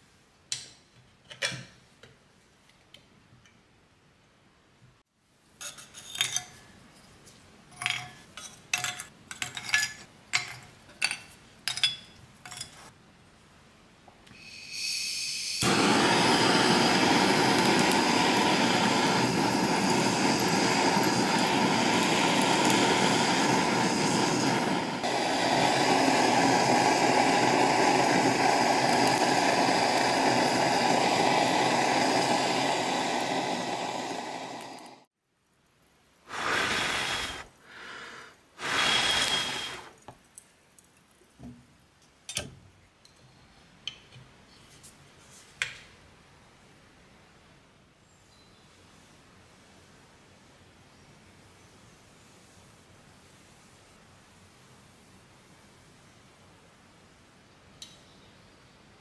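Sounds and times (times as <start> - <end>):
gas torch hissing: 14.3 - 35.1, 36.3 - 40.0.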